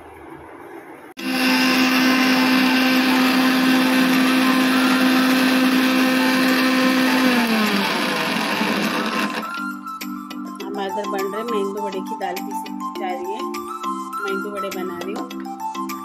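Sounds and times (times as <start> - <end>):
mixer grinder motor running: 1.2 - 9.7.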